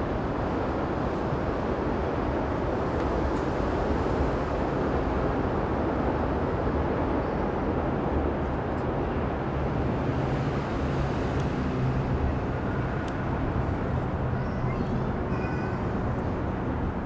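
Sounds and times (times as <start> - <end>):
distant traffic rumble: 7.9 - 17.0.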